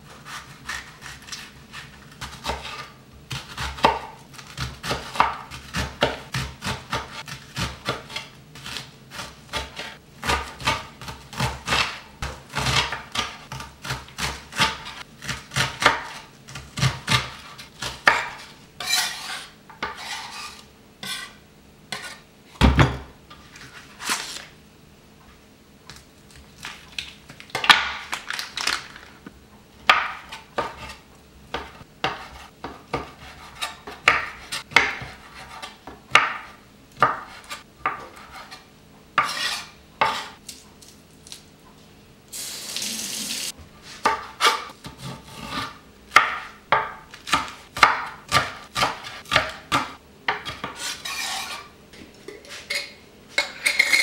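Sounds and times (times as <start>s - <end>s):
knife chopping on wooden board: 0.3s - 20.3s, 29.8s - 38.6s, 39.2s - 40.4s, 44.0s - 51.6s
knife scraping across board: 17.1s - 22.2s, 37.2s - 40.4s, 50.4s - 51.7s.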